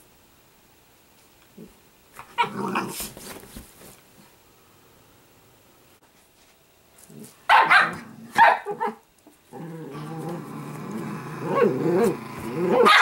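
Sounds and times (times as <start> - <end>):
dog growling: 1.6 - 3.1, 9.5 - 13.0
dog barking: 7.5 - 9.0, 12.7 - 13.0.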